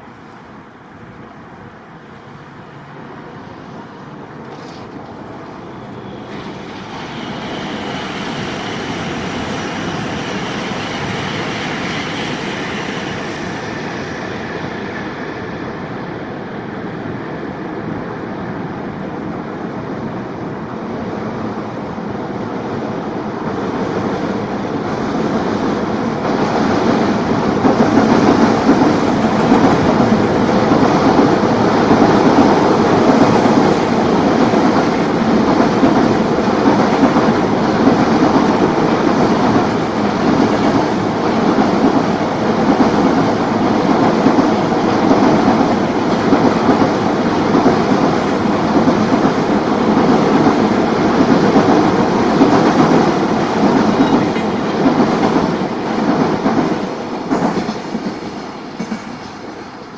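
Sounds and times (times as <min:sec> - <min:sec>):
freight train rumbling over steel bridge: 0:00.0 - 0:59.9
train wheel clatter: 0:27.2 - 0:59.8.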